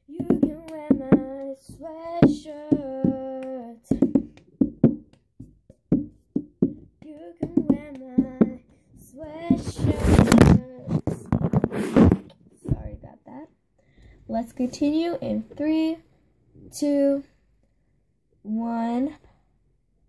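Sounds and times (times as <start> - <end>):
girl singing: 0.0 - 4.9, 6.6 - 11.3, 14.4 - 16.0, 16.7 - 17.3
hand claps: 0.2 - 8.7.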